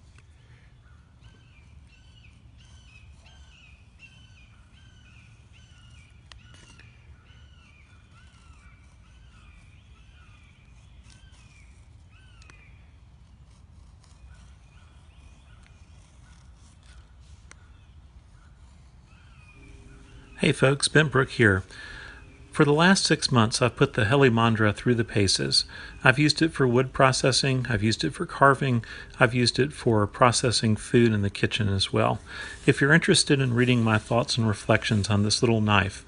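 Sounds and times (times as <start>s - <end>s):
bird calling: 0.0s - 36.0s
low outdoor rumble: 18.2s - 36.0s.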